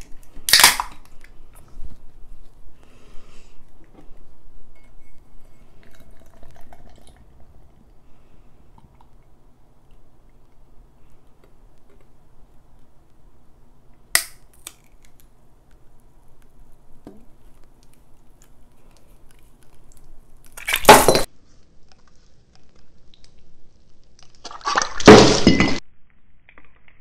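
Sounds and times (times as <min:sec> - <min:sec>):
glass shattering: 0:20.7 - 0:21.3, 0:25.0 - 0:25.8.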